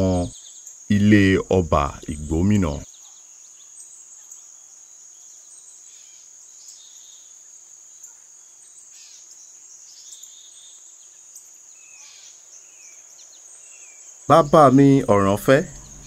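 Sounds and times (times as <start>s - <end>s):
crickets chirring: 0.0s - 16.0s.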